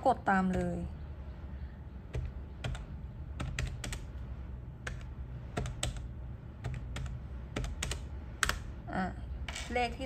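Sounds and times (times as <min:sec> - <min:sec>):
calculator keys clicking: 0:06.6 - 0:08.7.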